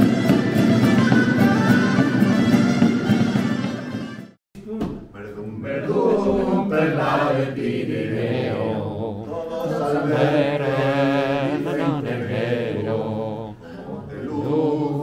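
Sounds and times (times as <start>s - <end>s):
man singing unaccompanied: 8.2s - 15.0s.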